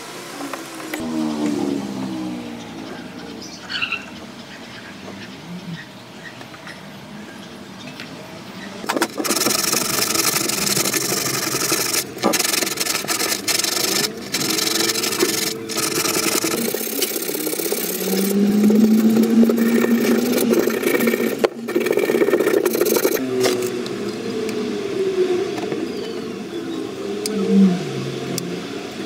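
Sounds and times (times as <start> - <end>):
sandpaper rasping on stone: 8.9 - 23.7.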